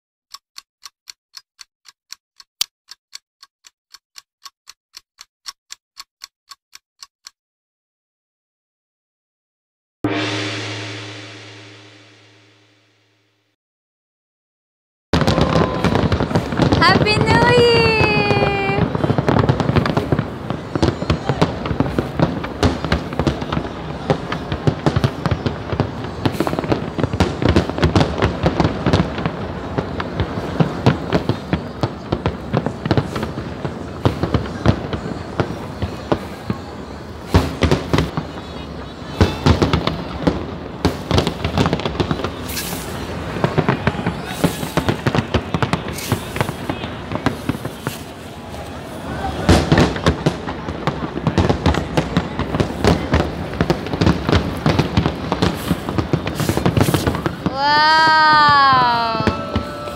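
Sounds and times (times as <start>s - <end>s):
clock ticking: 0.3s - 7.4s
fireworks bangs and crackles: 15.1s - 59.9s.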